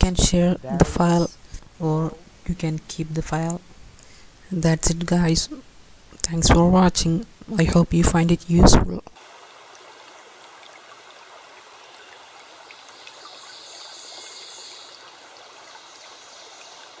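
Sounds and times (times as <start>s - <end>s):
background hiss: 0.0s - 17.0s
faint ticks: 2.8s - 4.2s.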